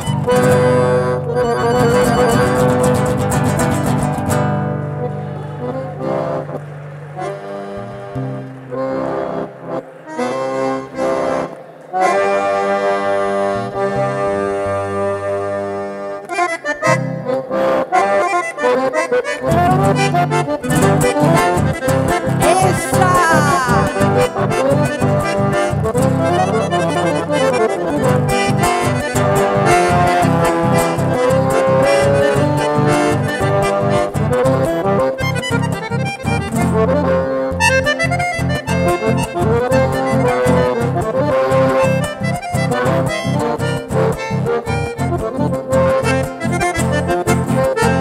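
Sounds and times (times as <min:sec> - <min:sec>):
acoustic guitar: 0:00.0 - 0:48.0
button accordion: 0:00.0 - 0:48.0.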